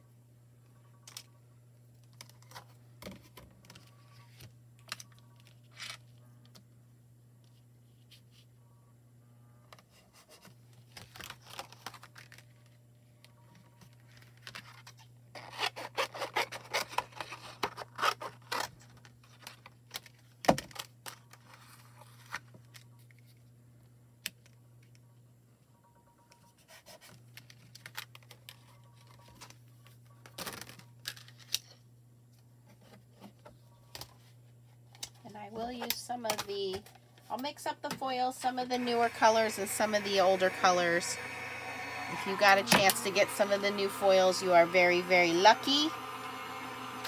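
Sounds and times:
low hum: 38.0s - 47.0s.

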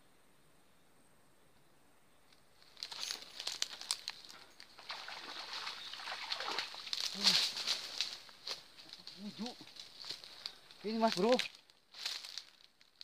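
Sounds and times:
sharp crackling noise: 2.3s - 4.8s, 6.3s - 13.0s
fish splashing and thrashing: 2.7s - 8.3s.

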